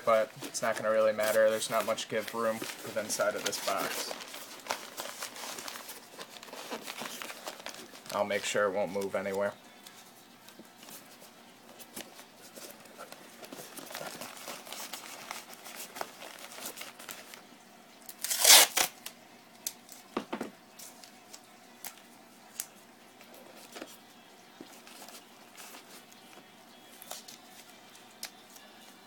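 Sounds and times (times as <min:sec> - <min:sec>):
newspaper crinkling: 0:00.0 - 0:19.1, 0:20.7 - 0:29.0
tape being handled: 0:00.1 - 0:29.0
tape ripping: 0:18.1 - 0:19.8.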